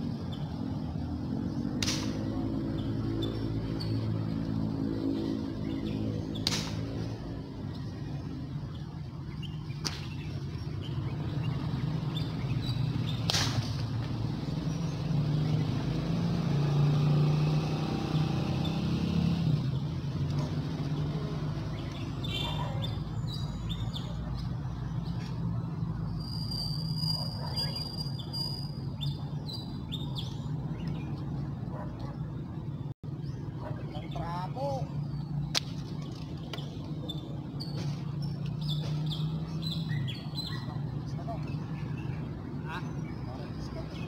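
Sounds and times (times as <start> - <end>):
birds chirping: 0.0 - 44.0
air rifle crack: 1.8 - 2.2.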